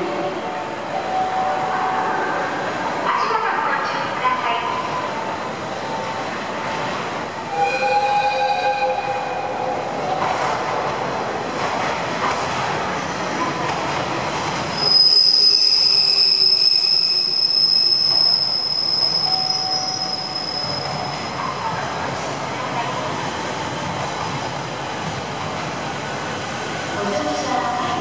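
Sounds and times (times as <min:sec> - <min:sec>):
train wheels squealing: 0:14.7 - 0:21.8.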